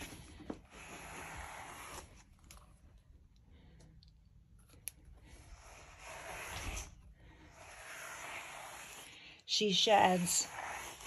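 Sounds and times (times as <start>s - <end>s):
brush strokes through dog fur: 5.5s - 11.0s.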